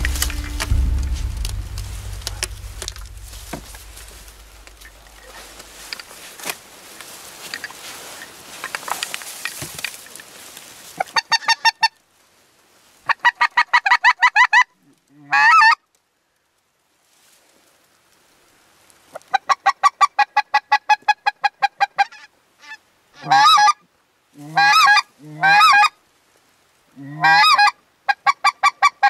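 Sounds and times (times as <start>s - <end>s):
low rustling: 0.0s - 9.4s.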